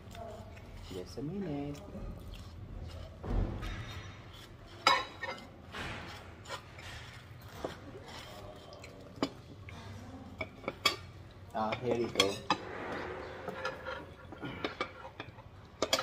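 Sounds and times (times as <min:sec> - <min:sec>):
cutlery clinking on plates: 0:02.9 - 0:09.5, 0:10.3 - 0:16.0.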